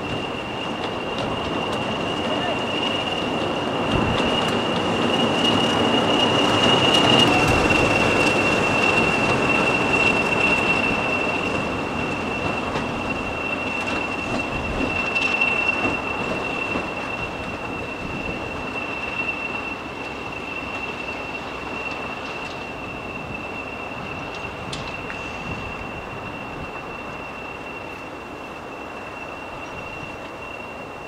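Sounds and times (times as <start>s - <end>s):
wheel noise: 0.0s - 27.9s
diesel locomotive engine: 0.0s - 31.0s.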